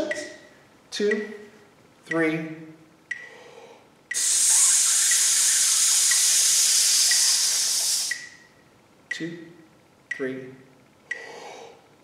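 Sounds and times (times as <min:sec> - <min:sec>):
faint ticks: 0:04.1 - 0:08.4
man hissing through teeth: 0:04.2 - 0:08.3
breath in: 0:11.2 - 0:11.8.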